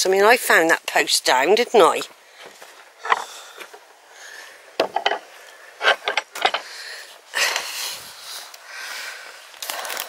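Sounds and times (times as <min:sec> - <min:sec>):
breathy hissing rustles: 0:06.6 - 0:10.0.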